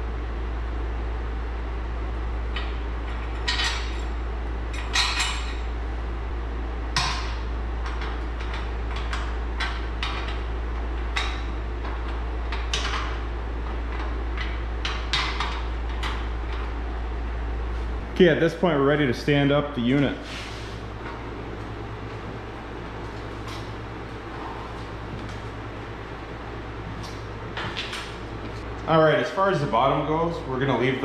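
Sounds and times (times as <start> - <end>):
steady low hum: 0.0 - 31.0
metal bolts clinking: 4.7 - 5.6.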